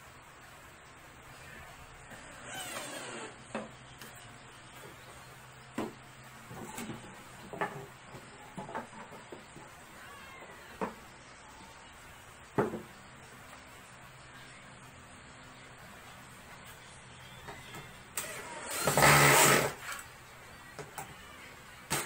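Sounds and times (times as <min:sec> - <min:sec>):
wooden knocks on bench: 0:12.6 - 0:12.9
cordless drill driving screw: 0:18.2 - 0:19.8.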